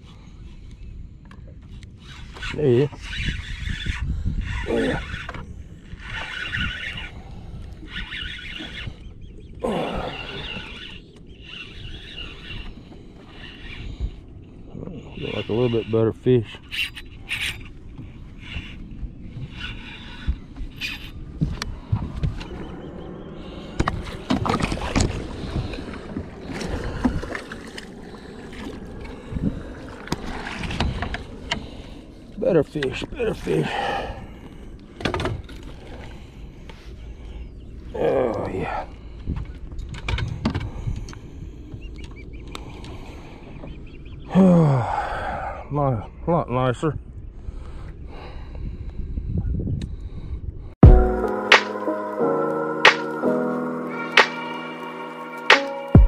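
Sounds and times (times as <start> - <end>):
wind rumble on microphone: 0.0 - 44.3, 45.0 - 51.1
fishing reel gears whirring: 2.0 - 9.1, 10.0 - 14.2, 18.4 - 21.2.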